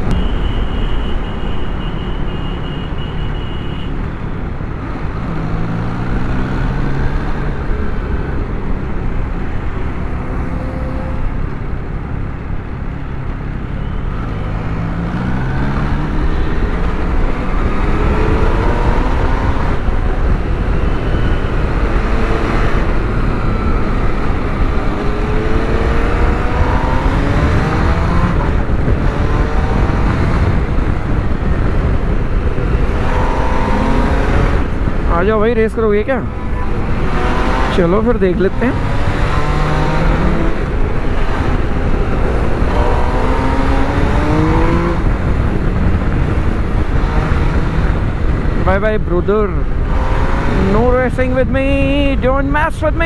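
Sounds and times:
wind and road noise: 0:00.0 - 0:53.0
motorcycle engine accelerating: 0:14.2 - 0:48.7.

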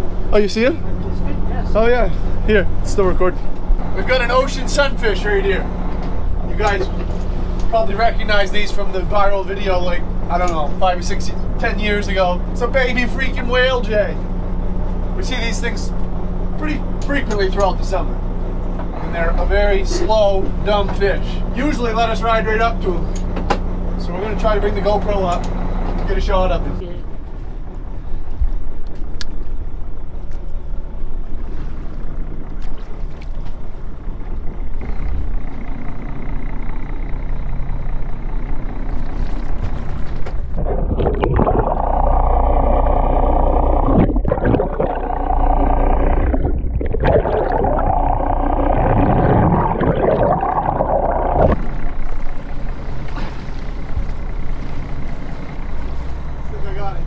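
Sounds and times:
boat engine idling: 0:00.0 - 0:57.0
water around hull: 0:00.0 - 0:57.0
muffled underwater hum: 0:29.6 - 0:57.0.

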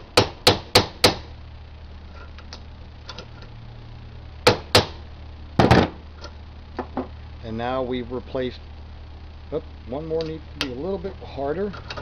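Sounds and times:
hammer striking rivet tool: 0:00.2 - 0:01.3.

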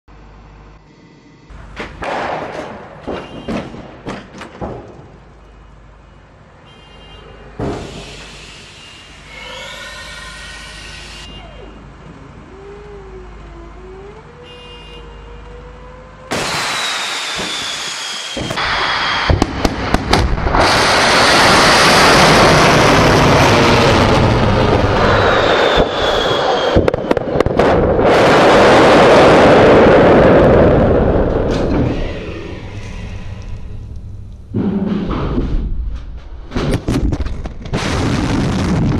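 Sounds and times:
rocket motor roaring: 0:07.9 - 0:11.8, 0:16.3 - 0:34.7.

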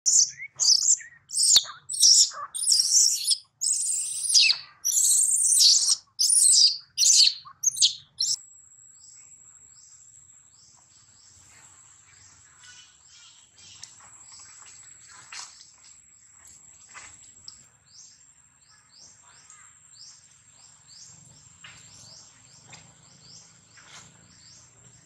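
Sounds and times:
baby monkey screaming: 0:00.1 - 0:08.4.

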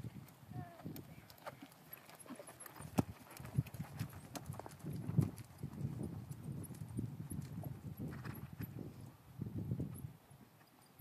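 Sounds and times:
horse hoofbeats on sand: 0:00.8 - 0:08.8.

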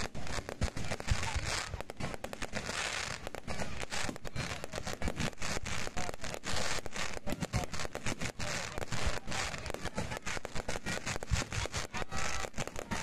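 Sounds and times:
fireworks booming: 0:00.0 - 0:13.0
fireworks crackling: 0:00.0 - 0:13.0.

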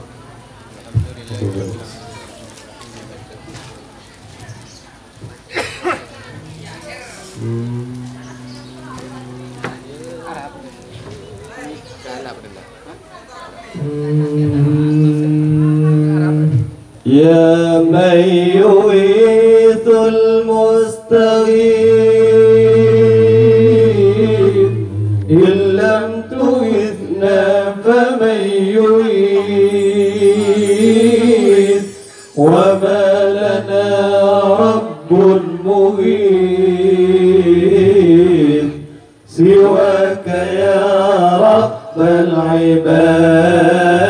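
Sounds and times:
men chanting into microphones: 0:07.3 - 0:10.4, 0:13.8 - 0:44.0.

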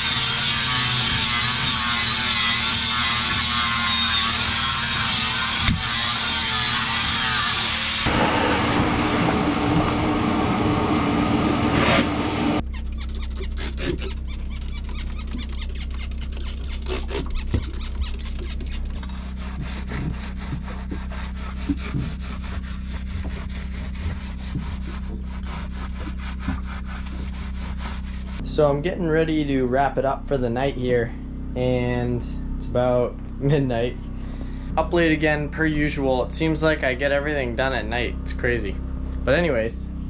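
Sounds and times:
brush scrubbing fiberglass: 0:00.0 - 0:08.1, 0:11.5 - 0:28.7
steady low hum: 0:00.0 - 0:40.0.

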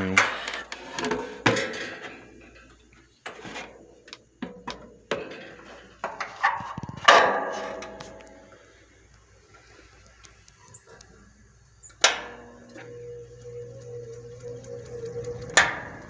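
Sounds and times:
knocks and clanks on sheet metal fan: 0:00.0 - 0:02.4, 0:04.4 - 0:08.1.

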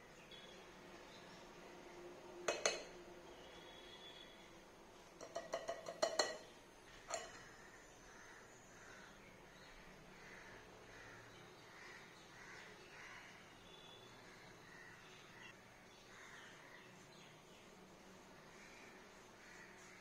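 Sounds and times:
utensils knocking against a bowl: 0:02.5 - 0:03.0, 0:05.2 - 0:07.5.

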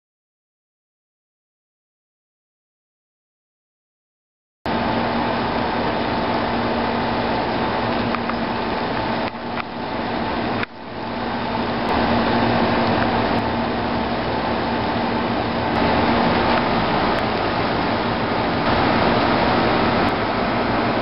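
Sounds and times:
steady mechanical hum: 0:04.7 - 0:21.0.

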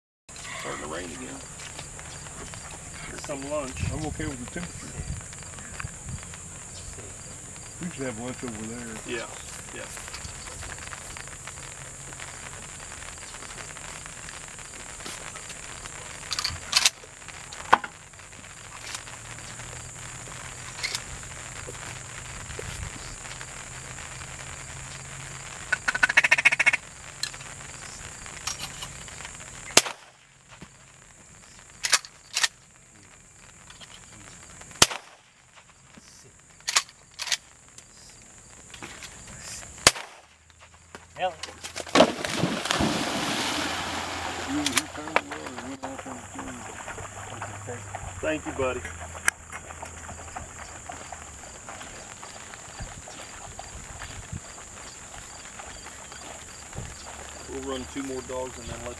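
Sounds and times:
duck call quacks: 0:25.7 - 0:26.8
gunshot cracks: 0:29.7 - 0:30.2, 0:34.8 - 0:35.3, 0:39.8 - 0:40.3.

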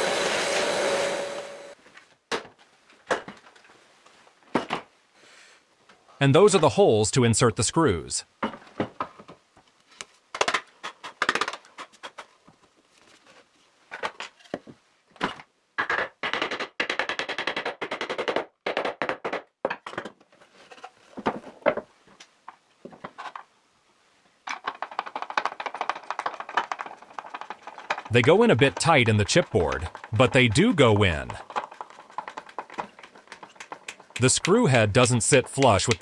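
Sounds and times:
board panels knocking and clattering: 0:24.5 - 0:30.6, 0:31.3 - 0:34.2.

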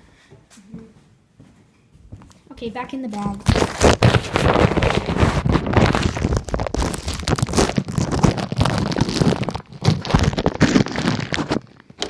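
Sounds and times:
plastic bag crinkling: 0:03.4 - 0:12.0.

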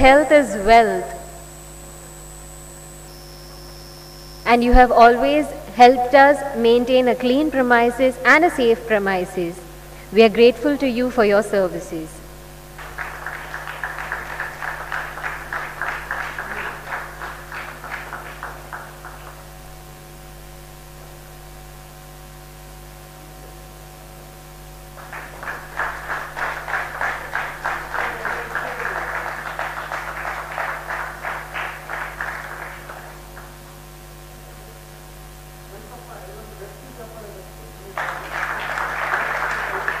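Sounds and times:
steady electrical hum: 0:00.0 - 0:40.0
audience clapping: 0:12.7 - 0:19.9, 0:24.9 - 0:33.7, 0:37.8 - 0:40.0.

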